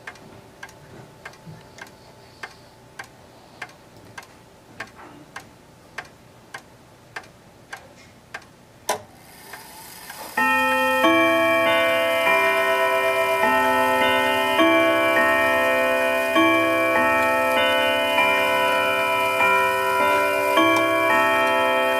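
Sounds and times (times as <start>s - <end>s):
clock ticking: 0.0s - 9.6s, 10.2s - 21.9s
clock mechanism click and whir: 7.2s - 21.9s
chime rods ringing: 10.2s - 21.9s.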